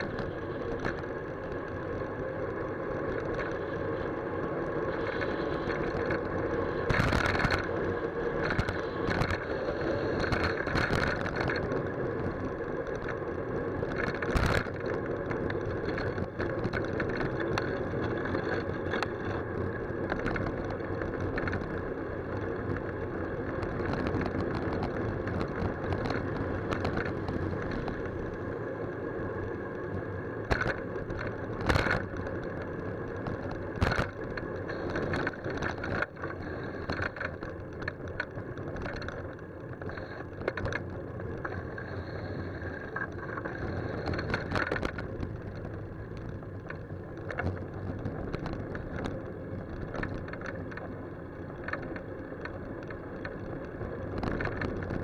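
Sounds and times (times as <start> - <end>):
road and wind noise: 0.0 - 55.0
bicycle knocks and rattles: 5.0 - 13.1, 13.8 - 21.8, 23.6 - 28.4, 30.4 - 32.5, 33.1 - 42.1, 43.0 - 50.9.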